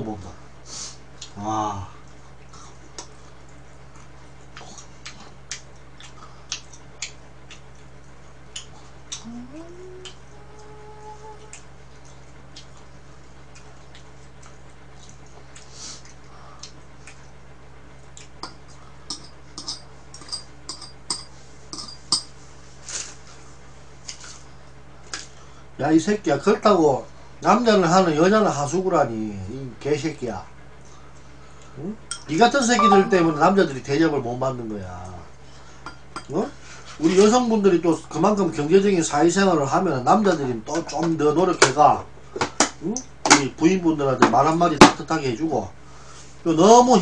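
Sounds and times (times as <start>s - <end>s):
chewing: 2.0s - 9.3s, 10.0s - 17.4s, 18.0s - 18.9s
chopsticks clicking while eating: 3.0s - 9.3s, 18.1s - 19.7s
low hum: 9.1s - 11.7s, 32.7s - 34.3s
chopsticks tapping dishes: 18.4s - 22.3s.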